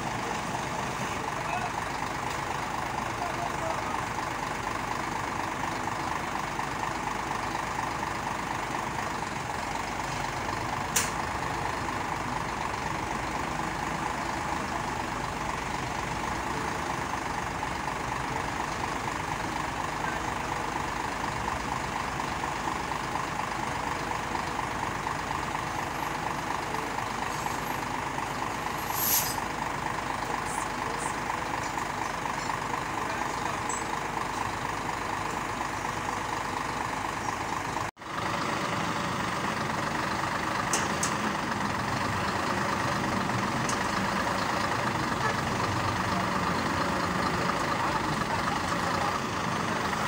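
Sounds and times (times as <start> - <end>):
truck engine running: 0.0 - 50.0
hiss burst: 28.8 - 29.4.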